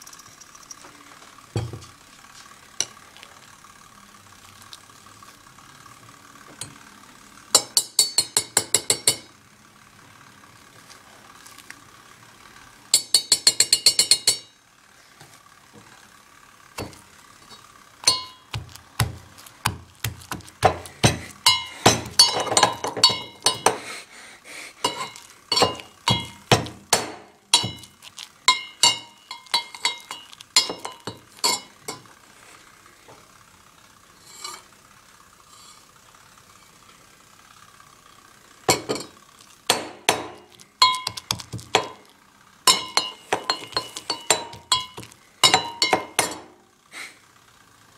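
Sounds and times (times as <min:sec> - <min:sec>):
metal pestle striking mortar: 0:18.0 - 0:23.8, 0:24.9 - 0:31.7, 0:39.7 - 0:42.0, 0:42.7 - 0:46.5.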